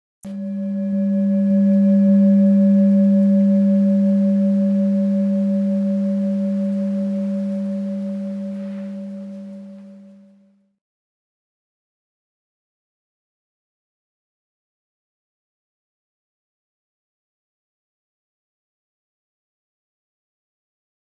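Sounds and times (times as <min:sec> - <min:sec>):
singing bowl ringing: 0:00.2 - 0:10.6.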